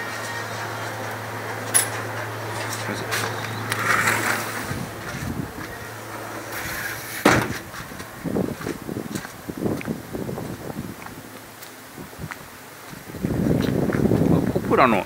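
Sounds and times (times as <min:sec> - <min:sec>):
steady low hum: 0:00.0 - 0:14.8
glass sliding door sliding open: 0:01.3 - 0:07.8.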